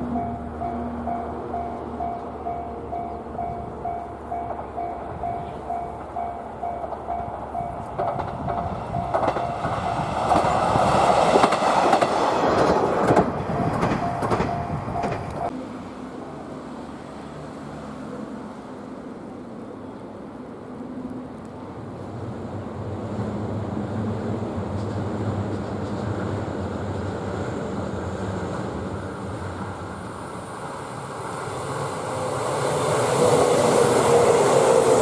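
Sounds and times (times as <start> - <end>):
diesel railcar passing: 0.0 - 35.0
wheels clacking over rail joints: 0.1 - 15.5
level crossing bell dinging: 13.5 - 15.5.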